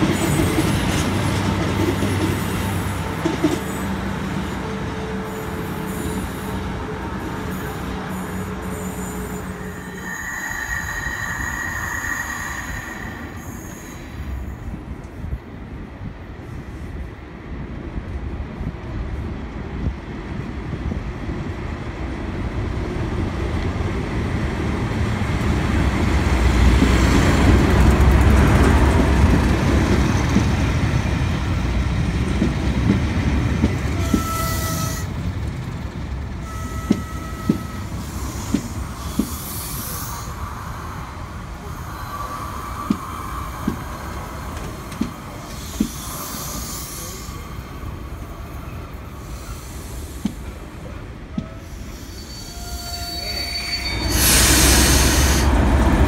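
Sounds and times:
train rumble: 0.0 - 56.0
wheel squeals: 51.8 - 55.4.

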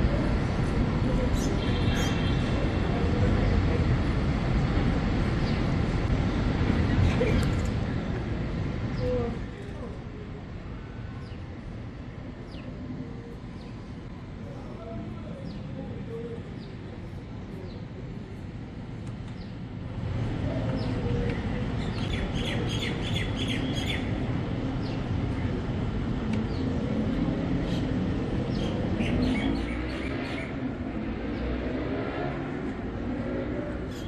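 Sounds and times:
low hum of city ambience: 0.0 - 34.0
small birds chirping: 20.6 - 24.1.

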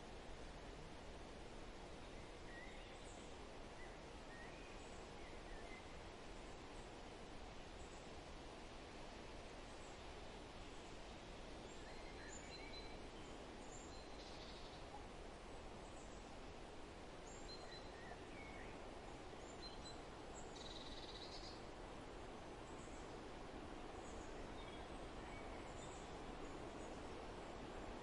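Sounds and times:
outdoor ambience hiss: 0.0 - 28.0.

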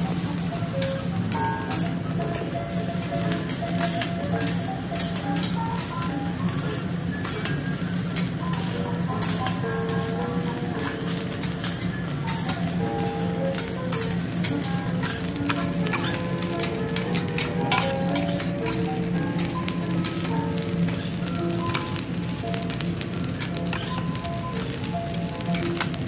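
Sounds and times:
rice sizzling on a griddle: 0.0 - 26.0
metal spatulas scraping and clacking: 0.8 - 6.6, 7.2 - 10.2, 10.8 - 12.6, 13.5 - 20.3, 20.9 - 21.9, 23.4 - 24.8.

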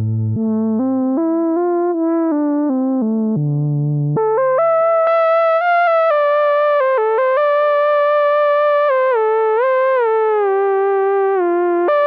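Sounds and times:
synthesizer brass melody: 4.2 - 9.1.

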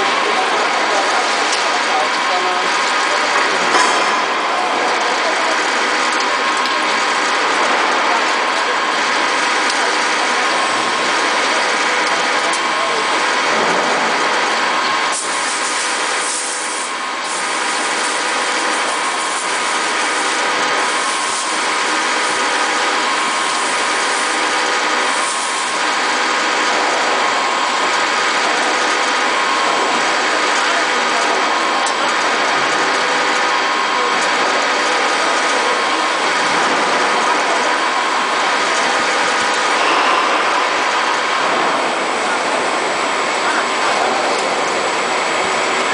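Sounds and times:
drill spindle whine cutting metal: 5.4 - 45.9.

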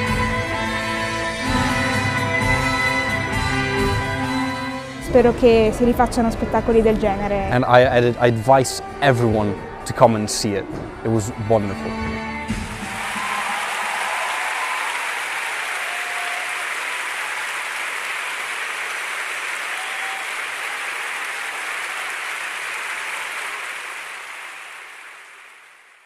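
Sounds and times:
audience applauding: 12.6 - 26.0.

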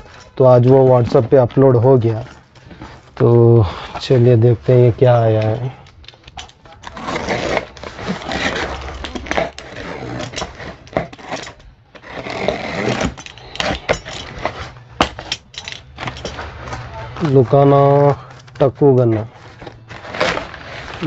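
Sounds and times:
utility knife cutting cardboard: 6.8 - 15.3, 19.1 - 21.0.

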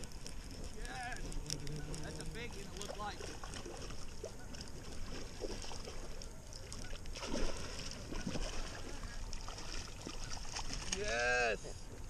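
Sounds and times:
fish splashing in water: 0.0 - 11.2.

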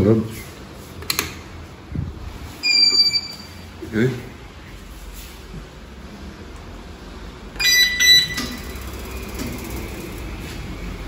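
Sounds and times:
short high electronic beeps: 2.6 - 3.6, 7.6 - 8.8.

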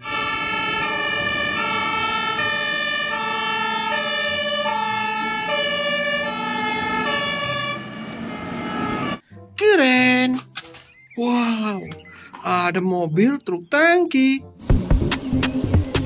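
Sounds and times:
fire engine two-tone siren: 0.0 - 9.2.

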